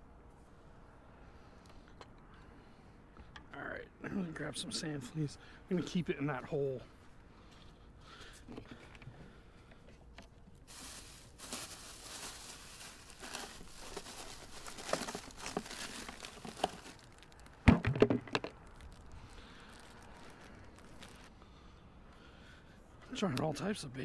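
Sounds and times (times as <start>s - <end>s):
plastic bag crinkling: 10.6s - 21.3s
loud knocks and clatter: 17.7s - 18.5s.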